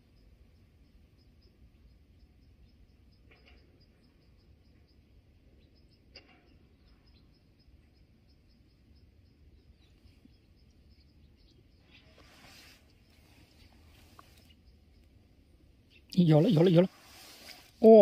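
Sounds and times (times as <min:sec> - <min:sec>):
brief rustle: 0:12.0 - 0:14.6, 0:16.9 - 0:17.8.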